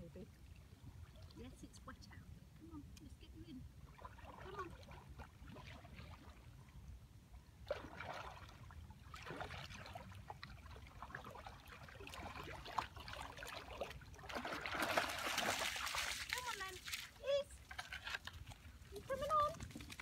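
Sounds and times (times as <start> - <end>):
kayak paddle strokes in water: 7.7 - 20.0.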